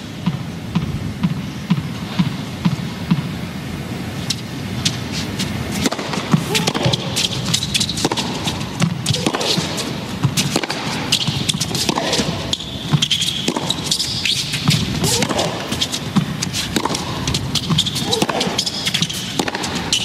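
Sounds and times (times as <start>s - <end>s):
racket hitting ball: 4.3s - 20.0s.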